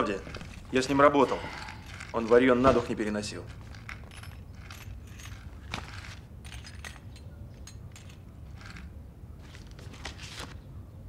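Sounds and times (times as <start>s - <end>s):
paper sheets rustling: 9.4s - 10.6s.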